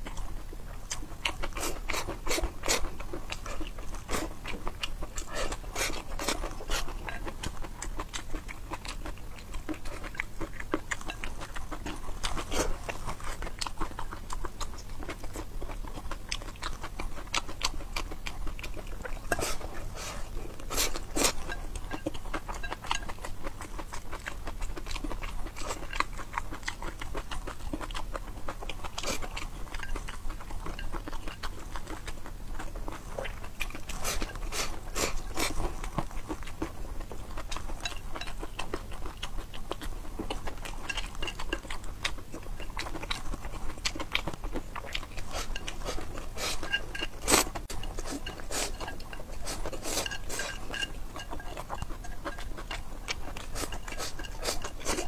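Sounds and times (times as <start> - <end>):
noodles slurped and chewed: 0.0 - 55.0.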